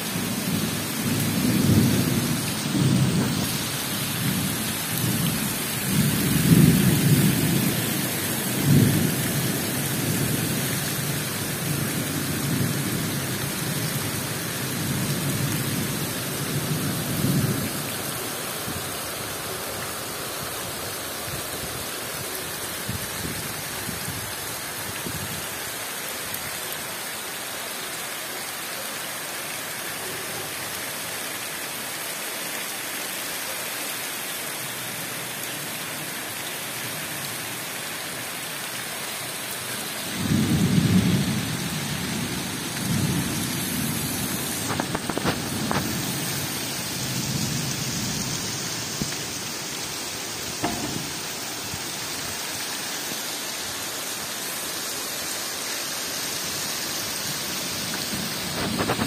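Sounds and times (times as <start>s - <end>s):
heavy rain hissing: 0.0s - 59.0s
thunder rumbling: 0.4s - 10.5s.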